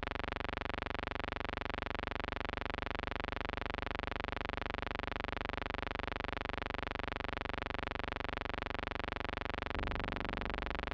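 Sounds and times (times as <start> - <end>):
steady buzzing hum: 9.4 - 10.9.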